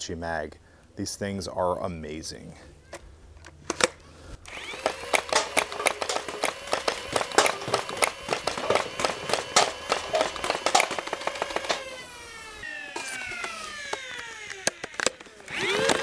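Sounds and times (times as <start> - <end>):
flywheel motors whining: 4.5 - 16.0
solenoid clacking shots: 4.7 - 11.9
darts knocking over plastic cups: 4.8 - 11.9.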